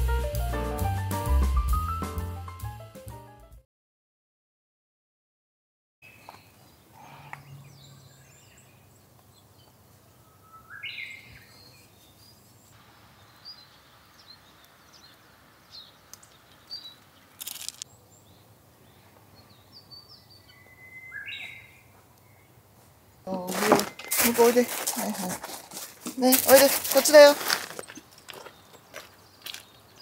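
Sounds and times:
birds chirping: 6.0s - 25.4s, 26.2s - 30.0s
faint outdoor hiss: 6.0s - 30.0s.

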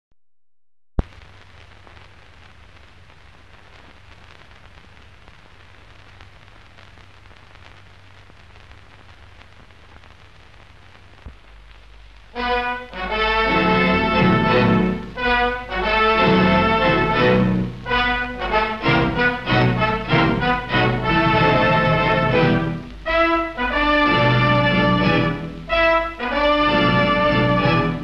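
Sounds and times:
film soundtrack hiss and crackle: 1.0s - 28.0s.

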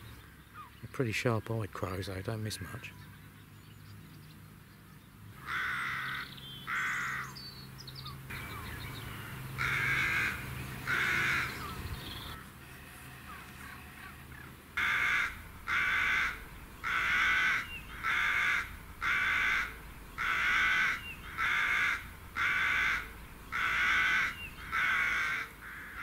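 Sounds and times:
crow cawing: 5.4s - 7.3s, 9.6s - 11.8s, 13.3s - 26.0s.

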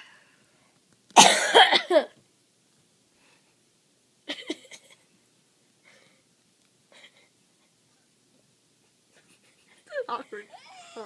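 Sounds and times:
person coughing: 1.2s - 2.1s.

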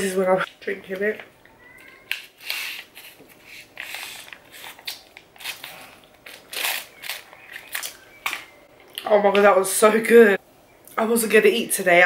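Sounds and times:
foil drink pouch crinkling: 2.1s - 8.5s.

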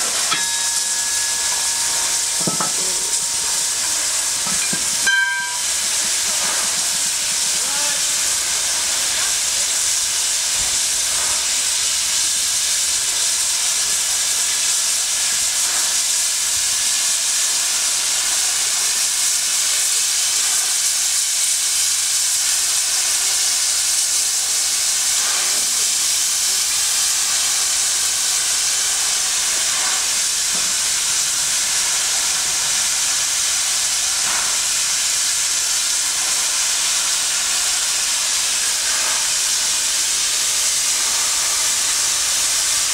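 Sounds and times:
hiss of escaping steam: 0.0s - 42.9s.

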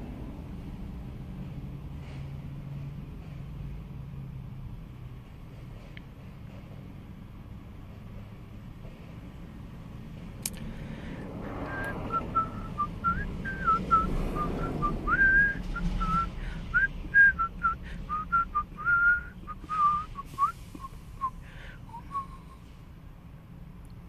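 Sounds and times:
person whistling: 11.7s - 22.7s.

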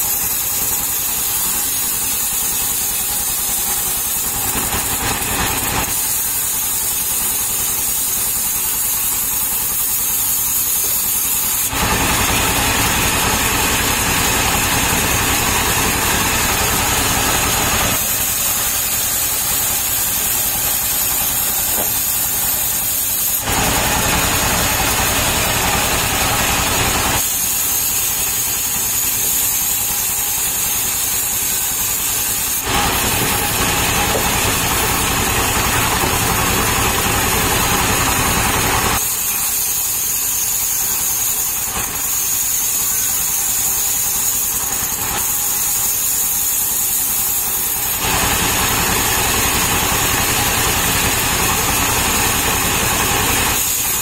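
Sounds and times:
circular saw cutting wood: 0.0s - 54.0s
engine running: 11.6s - 31.4s, 32.2s - 39.1s.

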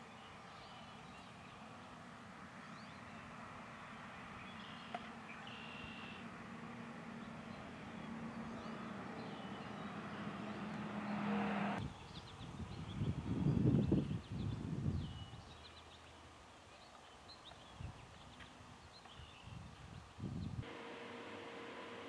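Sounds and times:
small birds chirping: 0.0s - 2.0s, 2.6s - 6.3s, 7.1s - 20.6s
vehicle engine hum: 0.7s - 11.9s, 20.6s - 22.0s.

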